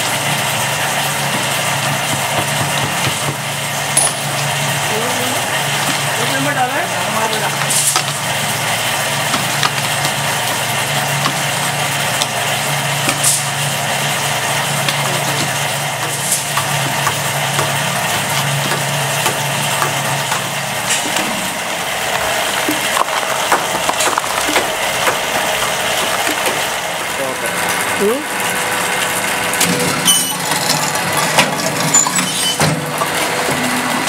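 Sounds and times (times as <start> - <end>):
concrete mixer grinding: 0.0 - 34.0
low motor hum: 0.0 - 34.0
aggregate clicks and knocks: 22.6 - 26.7.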